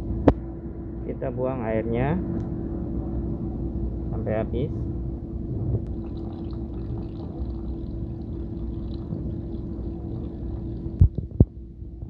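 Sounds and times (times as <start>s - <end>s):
steady low hum: 0.0s - 12.0s
water pouring into plastic basin: 5.9s - 11.1s.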